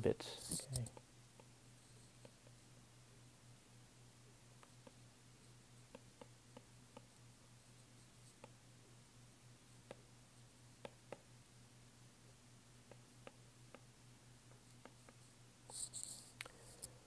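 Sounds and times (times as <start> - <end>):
low steady hum: 0.0 - 17.0
stylus tapping on tablet screen: 5.8 - 7.1, 10.8 - 11.3.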